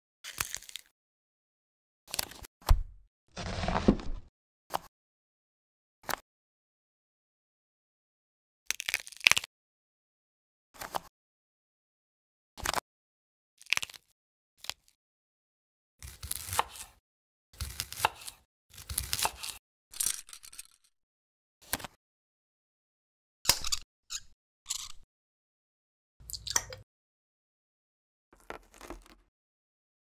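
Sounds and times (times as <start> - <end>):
knife slicing tomato on board: 16.0 - 17.0, 17.6 - 19.6.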